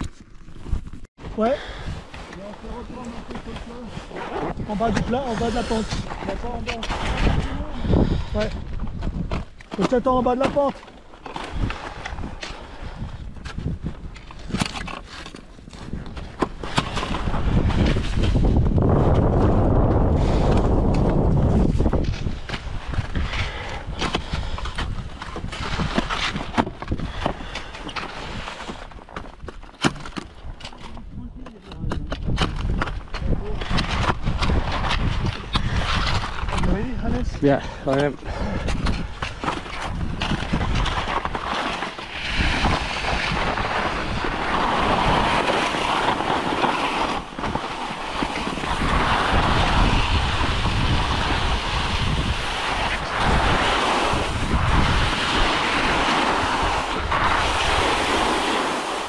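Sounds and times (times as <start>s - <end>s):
wind buffeting microphone: 0.0s - 10.7s, 11.4s - 14.9s, 15.6s - 27.5s, 30.4s - 59.0s
snow crunching and scraping: 0.0s - 31.8s, 32.5s - 59.0s.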